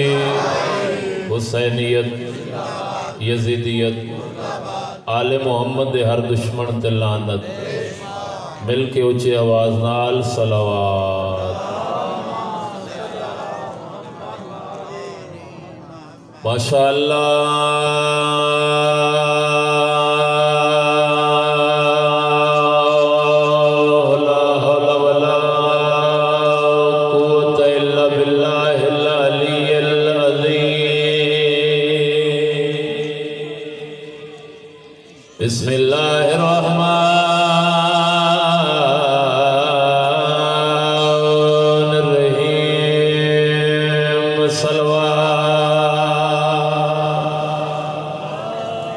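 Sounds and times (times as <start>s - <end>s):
man chanting through loudspeakers: 0.0s - 11.8s, 14.8s - 48.9s.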